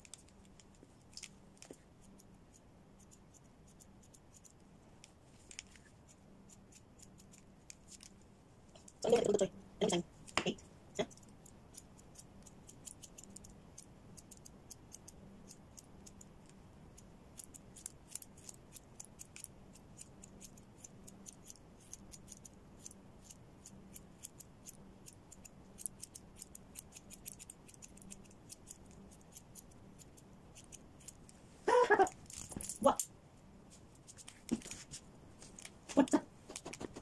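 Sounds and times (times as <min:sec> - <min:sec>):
scissors snipping fur: 0:00.0 - 0:05.7, 0:06.5 - 0:08.2, 0:10.2 - 0:31.3.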